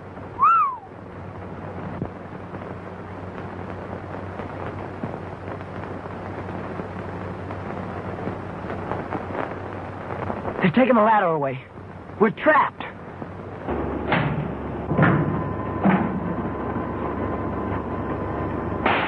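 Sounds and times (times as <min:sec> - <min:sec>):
film soundtrack hiss: 0:00.0 - 0:19.0
low constant hum: 0:00.0 - 0:19.0.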